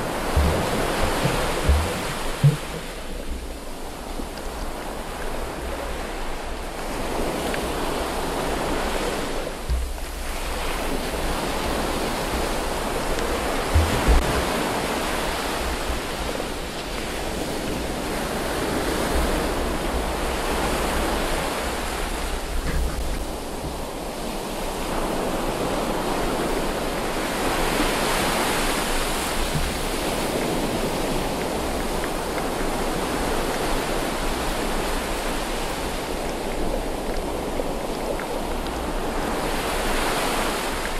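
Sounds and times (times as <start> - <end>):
low thumps: 0.0 - 3.6, 13.7 - 14.5
water rushing and sloshing: 0.0 - 40.9.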